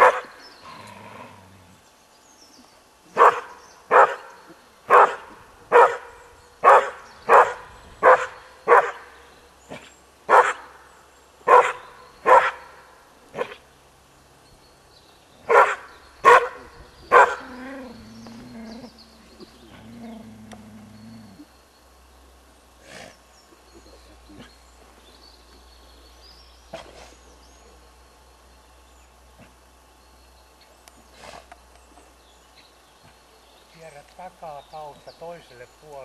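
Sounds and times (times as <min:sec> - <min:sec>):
dog barking: 0:00.0 - 0:00.3, 0:03.2 - 0:04.2, 0:04.9 - 0:09.0, 0:10.3 - 0:10.7, 0:11.5 - 0:12.7, 0:15.5 - 0:17.5.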